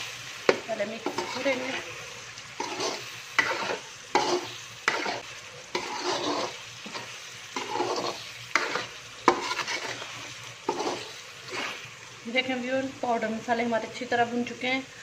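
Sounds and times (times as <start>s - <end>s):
food sizzling in oil: 0.0s - 15.0s
metal spatula scraping a pan: 0.5s - 11.9s.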